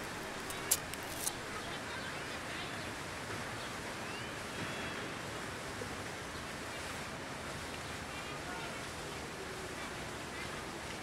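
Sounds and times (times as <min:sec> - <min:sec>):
outdoor background hiss: 0:00.0 - 0:11.0.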